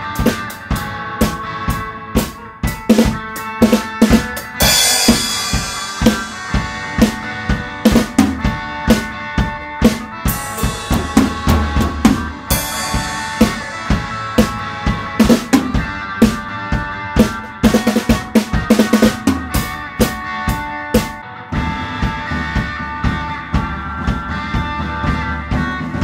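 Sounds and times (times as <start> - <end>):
bass: 0.0 - 26.0
drum kit groove with rimshots: 0.0 - 26.0
guitar and keyboard chords: 0.0 - 26.0
cymbal crashes: 4.6 - 7.2, 10.3 - 14.6.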